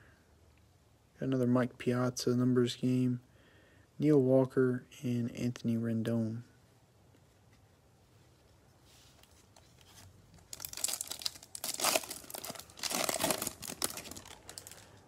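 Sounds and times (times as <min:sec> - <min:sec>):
foil wrapper tearing and crinkling: 0:10.4 - 0:15.0.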